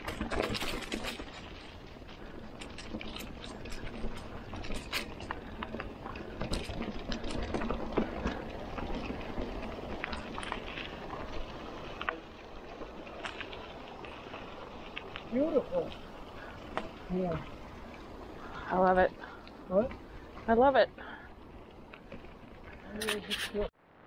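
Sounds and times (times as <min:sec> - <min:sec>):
bike clicks and rattles: 0:00.0 - 0:23.7
bike tyres crunching on gravel: 0:00.0 - 0:23.7.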